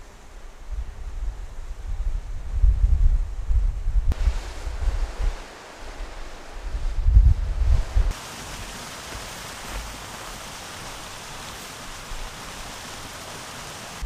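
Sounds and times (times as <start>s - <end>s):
steady hiss: 0.0s - 14.0s
wind buffeting microphone: 0.5s - 8.2s.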